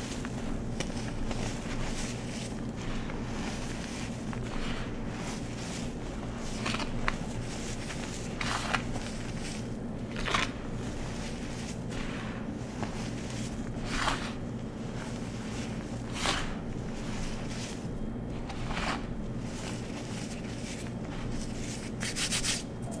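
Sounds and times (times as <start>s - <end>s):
hands crunching bath bomb powder: 0.0s - 22.6s
powder crackling: 0.0s - 22.6s
steady low hum: 0.0s - 23.0s.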